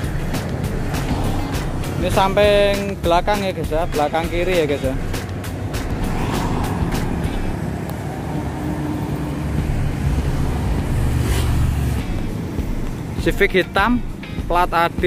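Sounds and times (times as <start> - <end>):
vehicle passing by: 0.0 - 2.4, 5.0 - 13.2
road traffic rumble: 0.0 - 15.0.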